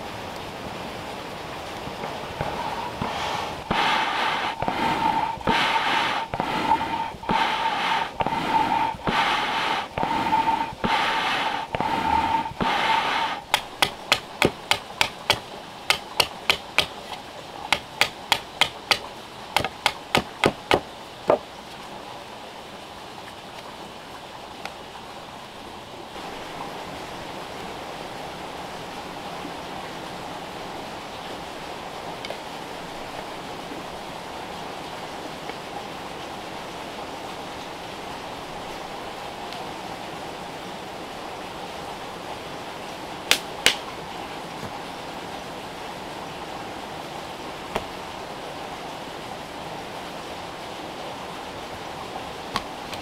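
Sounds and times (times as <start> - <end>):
bellows whooshing air: 2.0 - 14.5
blade cutting into log: 2.4 - 20.8.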